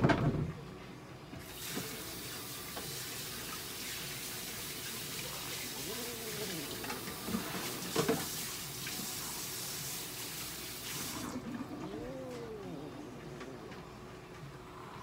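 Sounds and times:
tap water running into sink: 1.4 - 5.8, 6.4 - 11.5.

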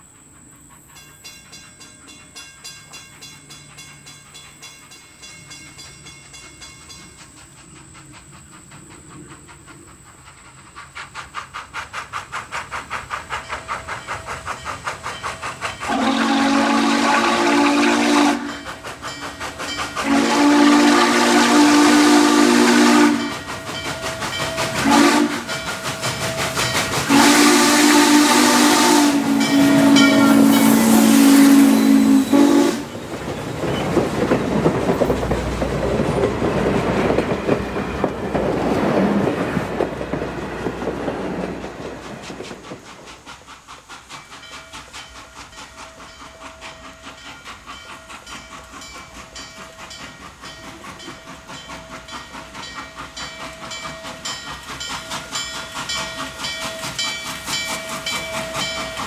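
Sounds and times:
locomotive steam hiss: 0.0 - 59.0
train wheels clicking over rail joints: 0.0 - 59.0
steam locomotive chime whistle: 15.6 - 33.0, 44.3 - 59.0.

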